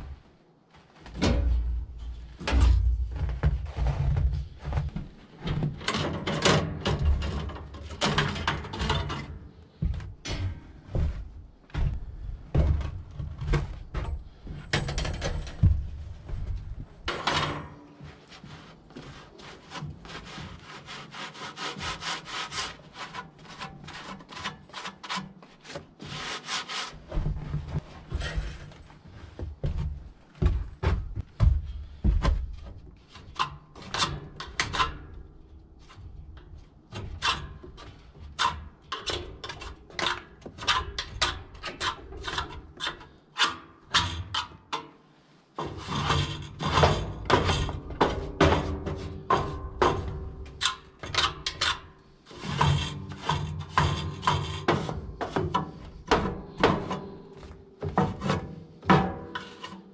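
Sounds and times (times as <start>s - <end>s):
hand brushing and scraping strokes: 18.0s - 29.4s.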